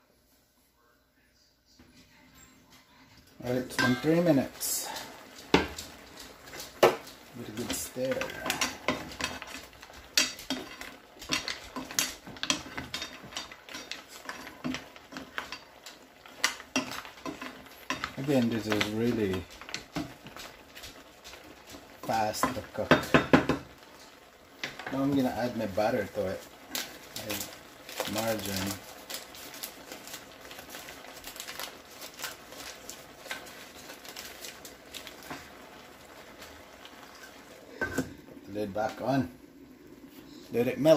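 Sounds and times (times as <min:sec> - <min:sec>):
spatula stirring shellfish in pan: 0:03.4 - 0:40.9
paper wrapper rustling: 0:26.0 - 0:37.2.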